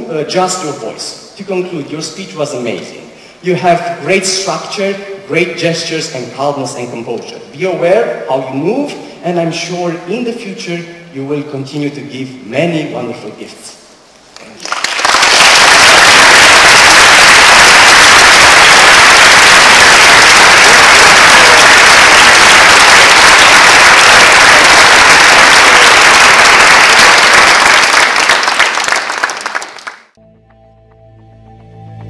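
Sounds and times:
audience applauding: 0:14.4 - 0:30.2.

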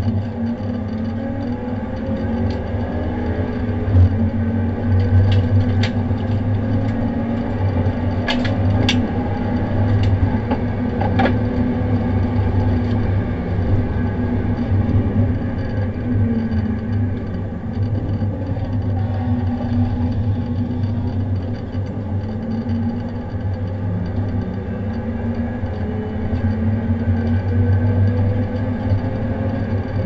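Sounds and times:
car engine at full throttle: 0:00.0 - 0:30.0.

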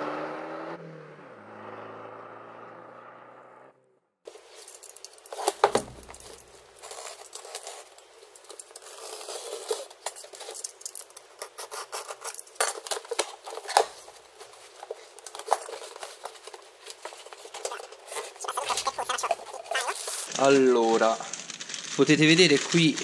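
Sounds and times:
cardboard flaps rustling: 0:04.3 - 0:20.3
knife slitting packing tape: 0:04.4 - 0:20.3.

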